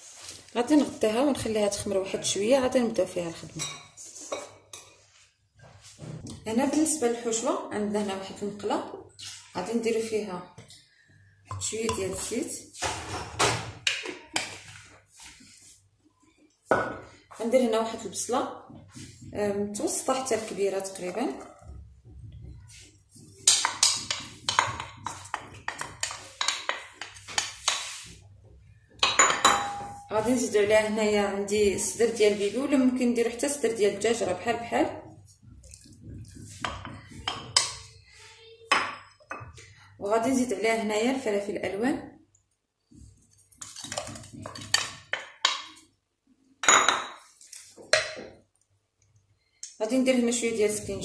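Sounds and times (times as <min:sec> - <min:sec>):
wooden spoon knocking ceramic bowl: 0:11.5 - 0:12.3, 0:23.4 - 0:27.8, 0:28.9 - 0:30.2, 0:35.6 - 0:37.9.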